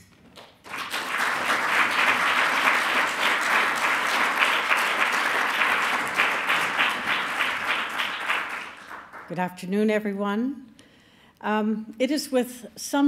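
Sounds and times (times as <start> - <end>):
audience applauding: 0.4 - 9.3.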